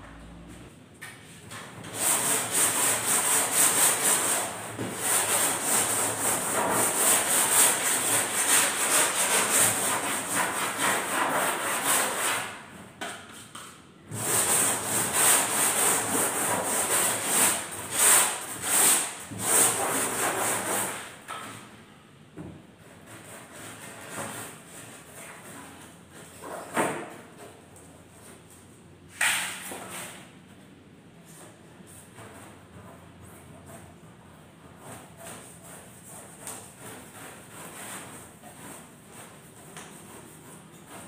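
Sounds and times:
sanding block rasping on foam: 1.9 - 12.5, 14.1 - 21.0, 34.7 - 41.0.

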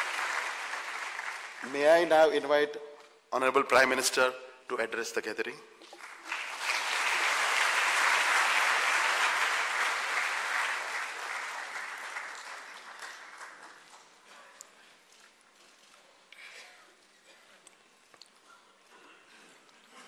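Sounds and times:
large audience applauding: 0.0 - 2.3, 5.9 - 14.3.

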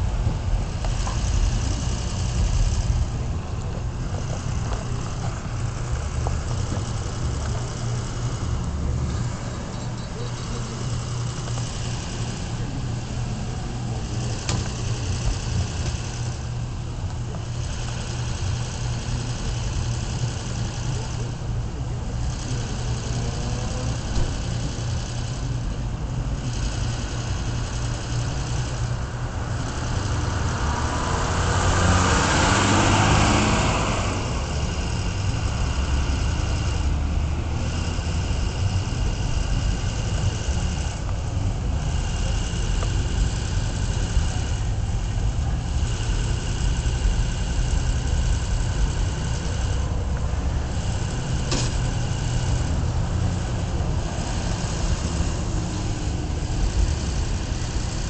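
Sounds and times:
car engine and road rumble: 0.0 - 58.0
rush of traffic noise: 0.0 - 58.0.

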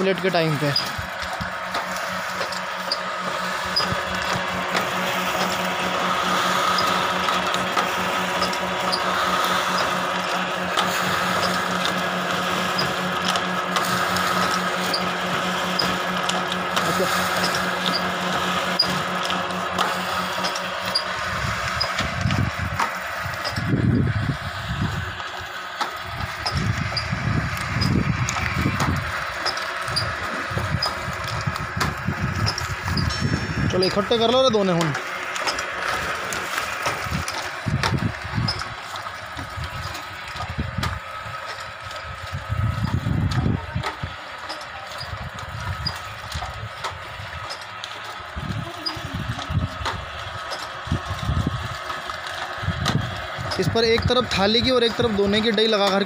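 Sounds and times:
machine whirring and pulsing: 0.0 - 56.0.

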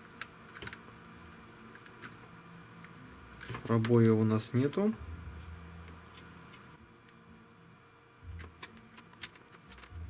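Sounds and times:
brief low hum: 5.0 - 6.0.

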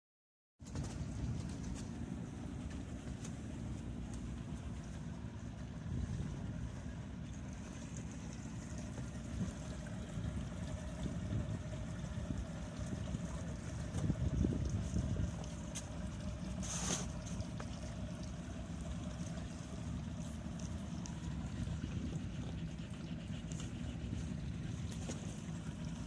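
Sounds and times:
boat motor rumbling: 0.6 - 26.0
wind on microphone: 10.8 - 15.6, 21.4 - 23.0.

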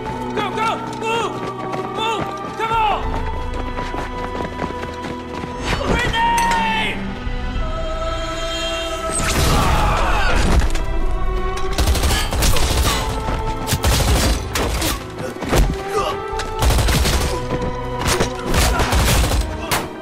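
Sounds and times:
film score music: 0.0 - 20.0
gunshots: 18.0 - 20.0.

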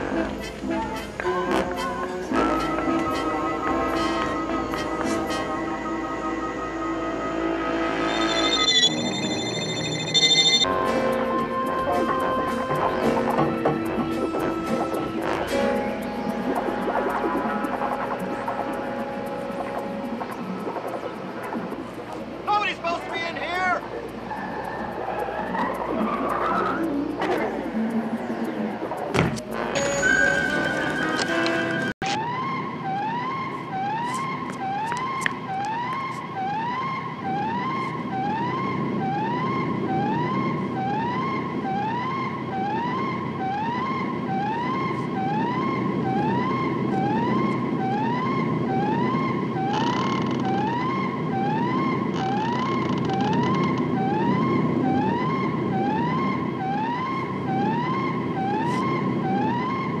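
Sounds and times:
whooping alarm siren: 2.3 - 10.8, 29.0 - 60.0.

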